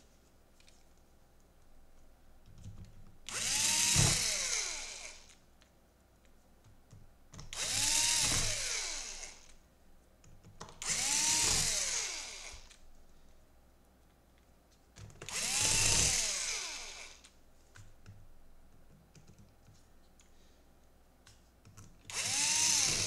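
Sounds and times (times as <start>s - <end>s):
electric screwdriver motor whine: 3.3s - 5.3s, 7.6s - 9.5s, 10.8s - 12.7s, 15.3s - 17.2s, 22.1s - 23.0s.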